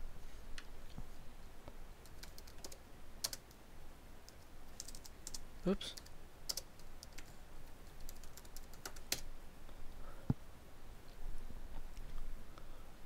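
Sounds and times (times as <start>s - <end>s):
keyboard keys clicking: 2.0s - 3.6s, 4.3s - 5.4s, 6.0s - 7.3s, 8.0s - 9.2s.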